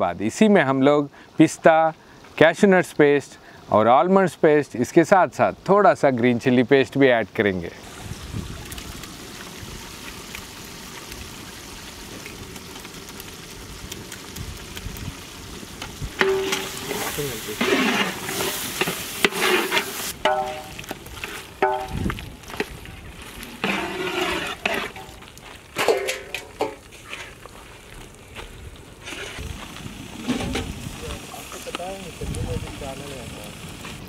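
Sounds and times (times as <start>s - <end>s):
faint steady hiss: 0.0s - 34.0s
metal spatula scraping pot: 16.1s - 22.0s, 23.5s - 25.2s.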